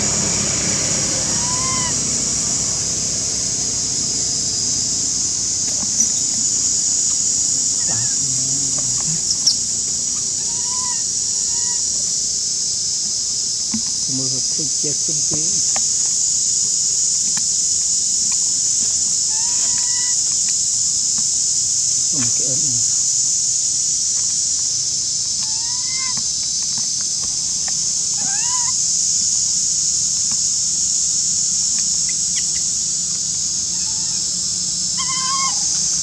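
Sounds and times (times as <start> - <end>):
bird calls: 0.0 - 12.1, 19.2 - 20.6, 25.4 - 26.3, 28.1 - 28.8, 34.9 - 36.0
insects droning: 0.0 - 36.0.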